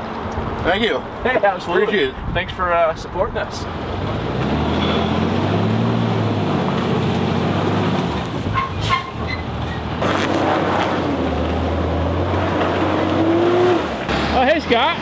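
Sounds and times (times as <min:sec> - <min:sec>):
truck engine under load: 0:03.7 - 0:15.0.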